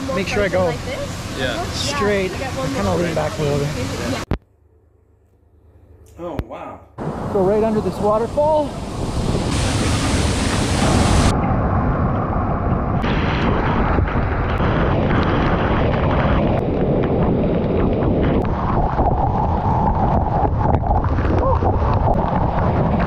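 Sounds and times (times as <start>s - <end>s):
waterfall rushing: 0.0s - 4.2s, 7.1s - 11.3s.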